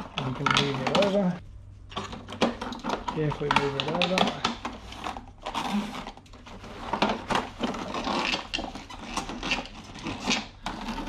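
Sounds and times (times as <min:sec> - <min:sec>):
plastic clicks and knocks: 0:02.0 - 0:04.8.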